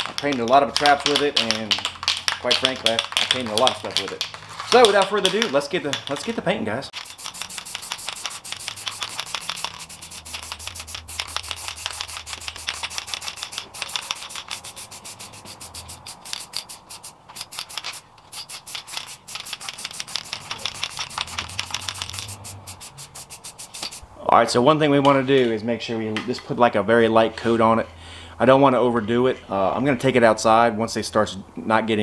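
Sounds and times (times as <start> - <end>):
spray can rattling: 0.0 - 24.0.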